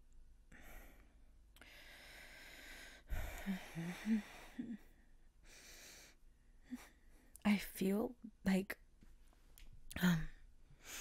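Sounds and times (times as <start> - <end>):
woman sighing breath: 1.6 - 4.9.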